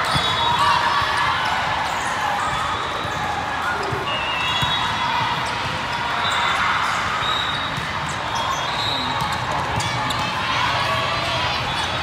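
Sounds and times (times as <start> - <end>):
echoing crowd noise: 0.0 - 12.0
shoe squeaks: 7.2 - 10.3
volleyball hits and bounces: 9.0 - 12.0.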